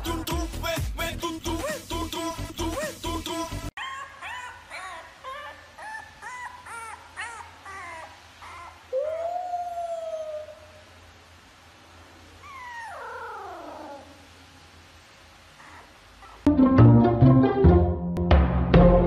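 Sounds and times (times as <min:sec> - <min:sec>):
puppy whimpering and whining: 0:03.8 - 0:10.9, 0:12.4 - 0:14.3, 0:15.6 - 0:16.5.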